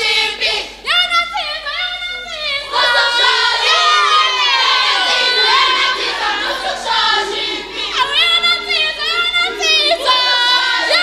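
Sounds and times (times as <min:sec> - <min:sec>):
crowd of young voices cheering: 0:02.7 - 0:11.0.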